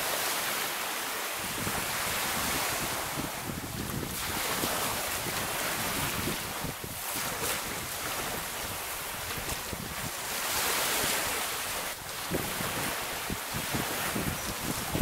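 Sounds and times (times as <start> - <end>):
small waves washing up a beach: 0.0 - 15.0
wind buffeting microphone: 1.4 - 15.0.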